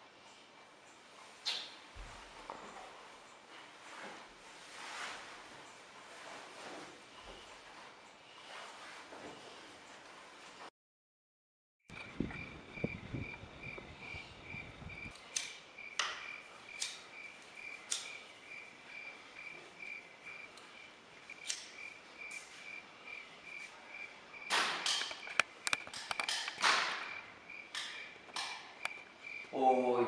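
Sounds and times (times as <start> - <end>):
rustling noise: 1.1 - 10.7
cricket chirping: 11.9 - 30.0.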